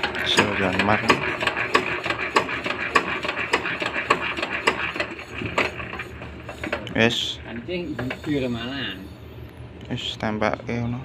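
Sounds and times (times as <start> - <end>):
diesel engine knocking: 0.0 - 6.8.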